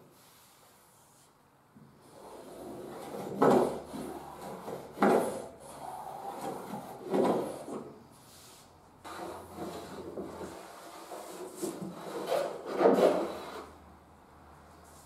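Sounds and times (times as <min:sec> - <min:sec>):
hand plane scraping wood: 0:02.0 - 0:13.9.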